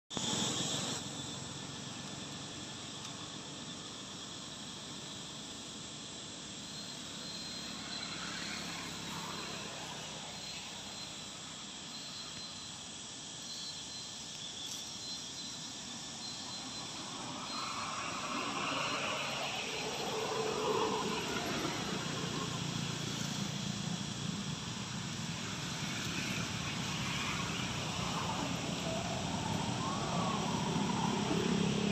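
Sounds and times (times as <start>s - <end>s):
insects buzzing: 0.1s - 31.9s.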